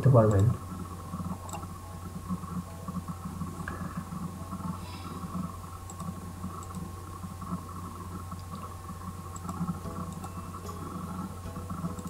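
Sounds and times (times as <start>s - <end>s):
steady low hum: 0.0s - 12.0s
faint hiss: 3.5s - 7.4s
faint clicks: 4.6s - 8.7s, 9.3s - 10.3s.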